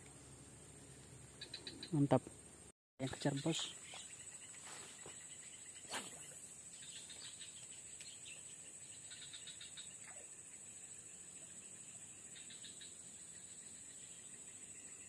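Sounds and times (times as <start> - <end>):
birds chirping: 0.0 - 15.0
high insect drone: 0.0 - 15.0
brief falling swish: 5.9 - 6.5.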